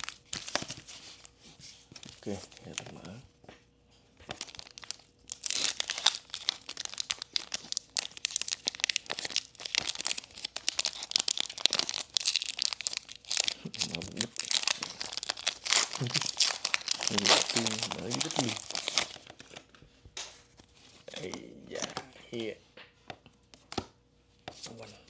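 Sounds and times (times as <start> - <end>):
foil wrapper crinkling and tearing: 0.0 - 1.3, 2.0 - 3.2, 4.3 - 19.6.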